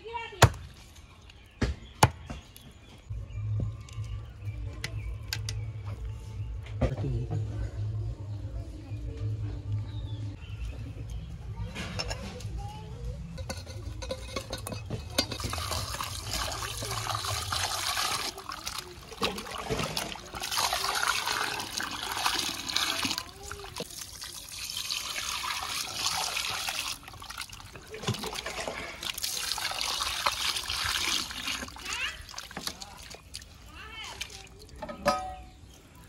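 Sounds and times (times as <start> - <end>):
water pouring into a pot: 14.4 - 34.8.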